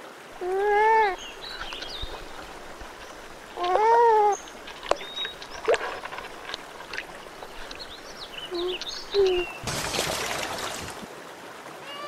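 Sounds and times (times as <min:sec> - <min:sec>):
stream rushing: 0:00.0 - 0:12.0
porcupine whining cry: 0:00.4 - 0:09.6.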